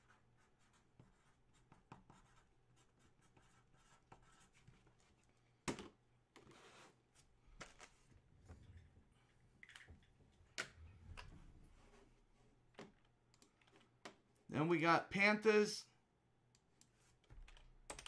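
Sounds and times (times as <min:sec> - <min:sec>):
marker pen scratching: 0:00.0 - 0:05.2.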